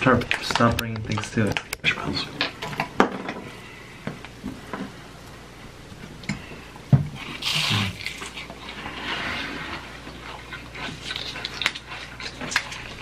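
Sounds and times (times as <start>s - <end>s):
wet chewing noises: 6.2s - 13.0s
crunchy bite: 7.2s - 8.5s.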